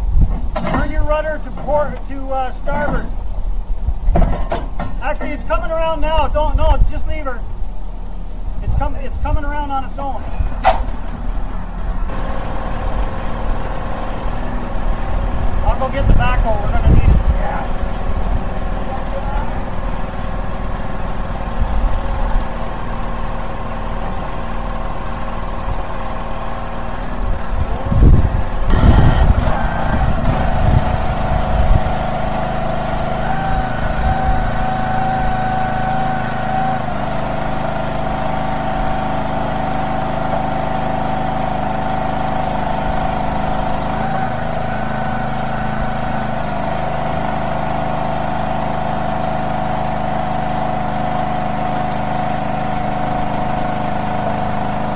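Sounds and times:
low thumps and rumbles: 0.0s - 26.2s, 27.0s - 32.4s
steady whine: 0.0s - 39.1s
engine running steadily: 0.0s - 54.9s.

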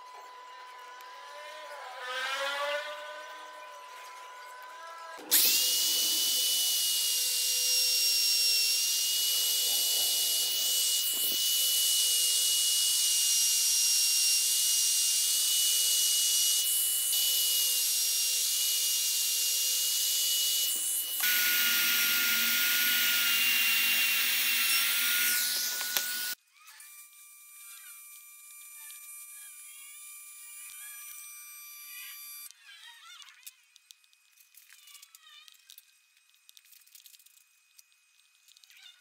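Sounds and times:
router cutting into wood: 1.0s - 3.4s, 5.1s - 32.5s.

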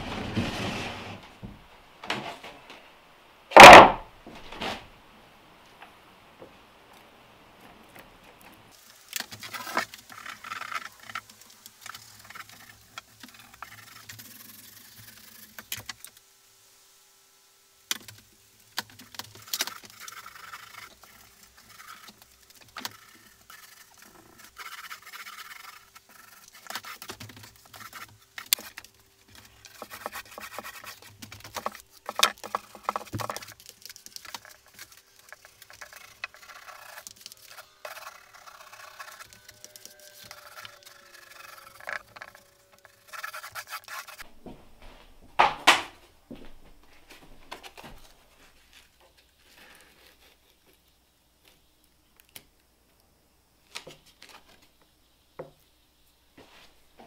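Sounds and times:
paint roller on wood: 0.0s - 1.4s, 8.7s - 16.1s, 18.8s - 44.3s.

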